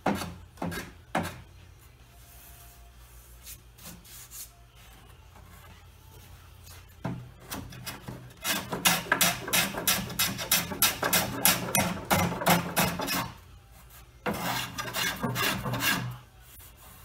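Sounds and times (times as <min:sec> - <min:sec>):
hand plane scraping wood: 0:14.3 - 0:16.2.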